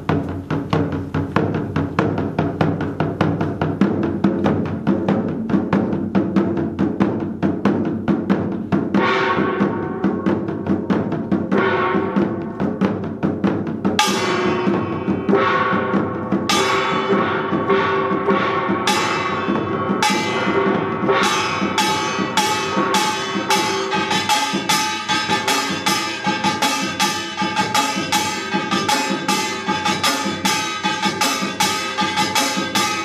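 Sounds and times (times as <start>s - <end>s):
drums playing fast rhythm: 0.0s - 33.0s
bright metallic strikes: 8.9s - 33.0s.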